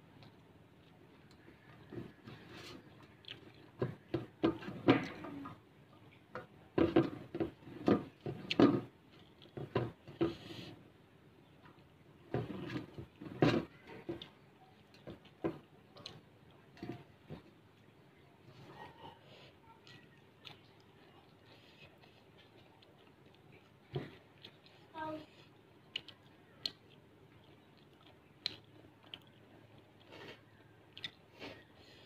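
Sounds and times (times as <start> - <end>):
chewing smacks: 0.1 - 4.1, 25.5 - 31.8.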